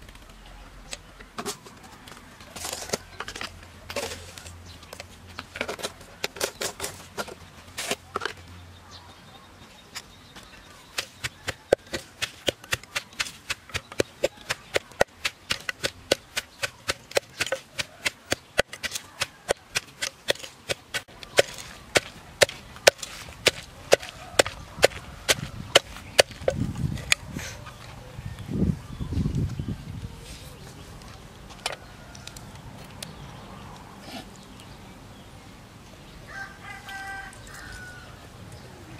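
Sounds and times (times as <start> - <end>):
pestle pounding in wooden mortar: 10.9 - 26.6.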